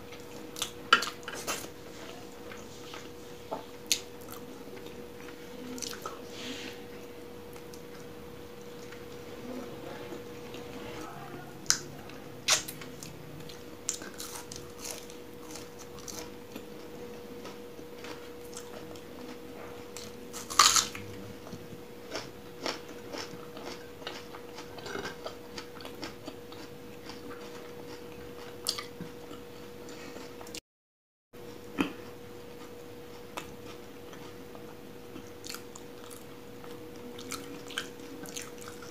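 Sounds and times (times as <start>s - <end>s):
faint steady hum: 0.0s - 30.6s, 31.4s - 38.9s
loud crunch of biting onion: 20.4s - 21.0s.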